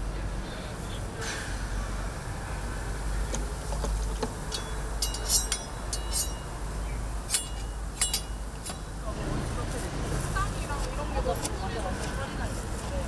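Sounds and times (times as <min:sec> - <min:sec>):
sharp metallic clicks: 0:07.3 - 0:08.9.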